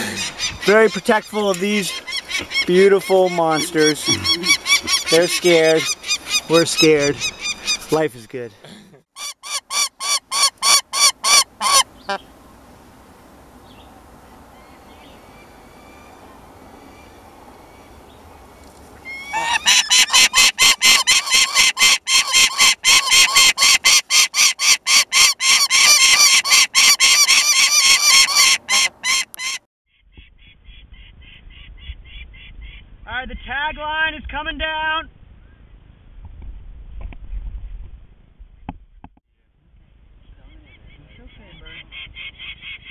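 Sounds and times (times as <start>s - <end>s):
falcon harsh repeated calls: 0.0s - 8.0s, 9.2s - 12.2s, 19.1s - 29.6s.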